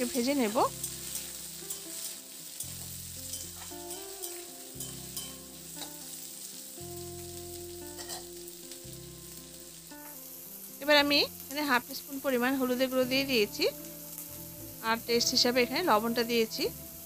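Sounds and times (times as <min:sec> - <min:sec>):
potatoes sizzling in oil: 0:00.0 - 0:17.0
metal spatula scraping pan: 0:00.7 - 0:06.1, 0:08.0 - 0:08.3.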